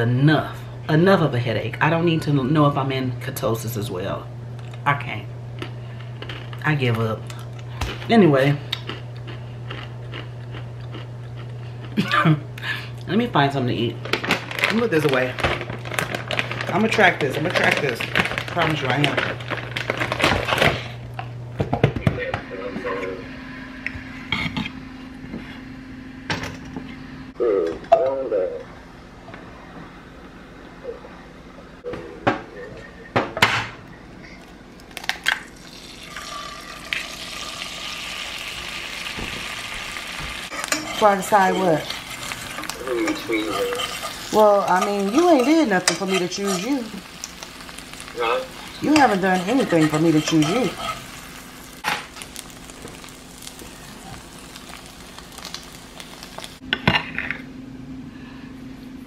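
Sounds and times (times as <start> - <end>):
faint steady hum: 0.0 - 59.0
food sizzling in a frying pan: 35.4 - 56.6.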